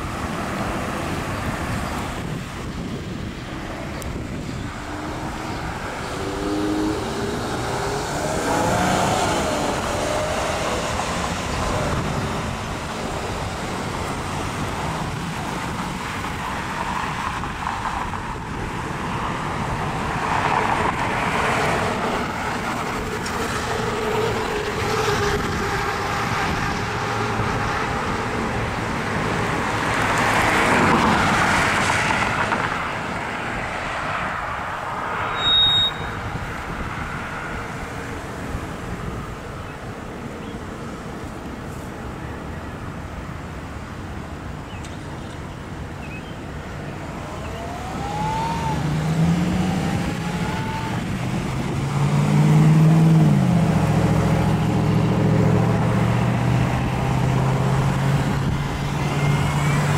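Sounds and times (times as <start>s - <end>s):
cars passing: 0.0s - 59.9s
engine pitch rising: 47.1s - 59.9s.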